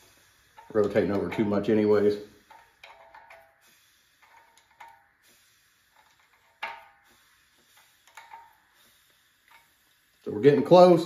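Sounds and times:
wrench clicking on metal: 0:02.4 - 0:03.6.

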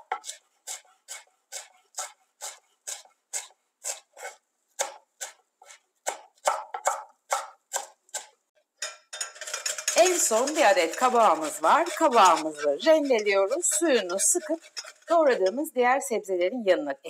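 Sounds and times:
knife chopping on wooden board: 0:00.0 - 0:08.3.

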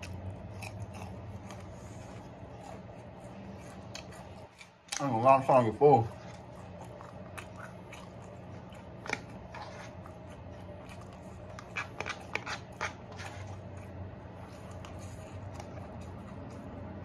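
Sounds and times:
person chewing: 0:00.0 - 0:05.1, 0:06.1 - 0:16.8
steady low hum: 0:00.0 - 0:17.0
plastic fork scraping container: 0:11.5 - 0:13.6.

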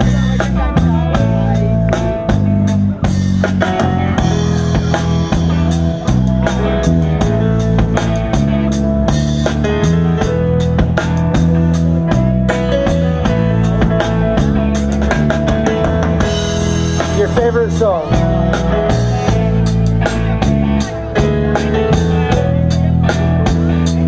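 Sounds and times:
bass: 0:00.0 - 0:24.0
drum kit beat: 0:00.0 - 0:24.0
guitar: 0:00.0 - 0:24.0.

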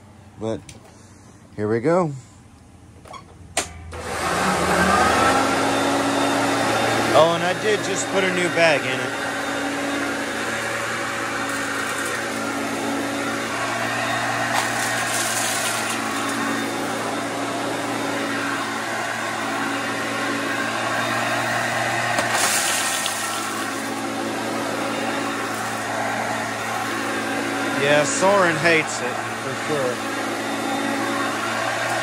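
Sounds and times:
vacuum cleaner running on carpet: 0:03.9 - 0:32.0.

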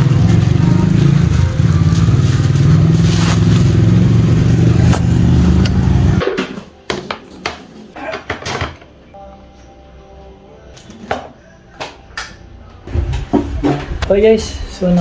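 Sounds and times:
scooter engine droning: 0:00.0 - 0:06.2.

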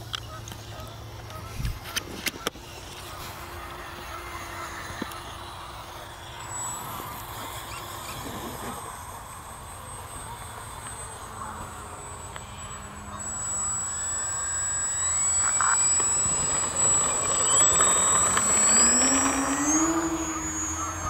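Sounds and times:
model plane motors whining: 0:00.0 - 0:21.0.

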